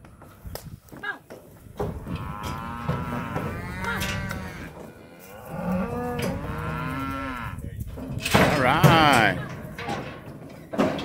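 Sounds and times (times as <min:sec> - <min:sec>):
calf mooing: 0:02.0 - 0:07.6.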